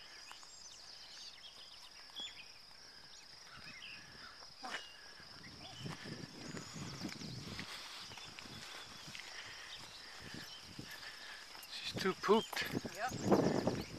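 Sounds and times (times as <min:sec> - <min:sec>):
bird chirps: 0:00.0 - 0:13.9
insects droning: 0:00.0 - 0:13.9
footsteps in grass: 0:04.6 - 0:13.9.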